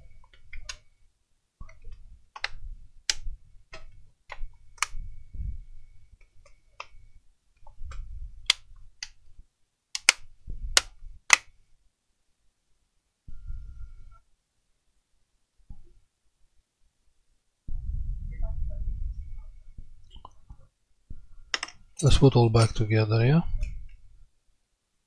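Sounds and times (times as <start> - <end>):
plastic clips clicking into place: 9.9 - 11.5.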